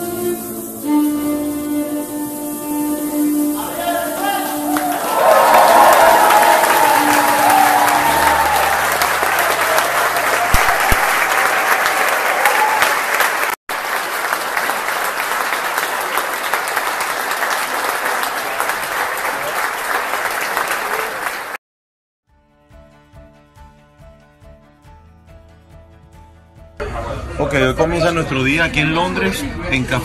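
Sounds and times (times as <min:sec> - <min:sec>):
large audience applauding: 0:03.8 - 0:21.6.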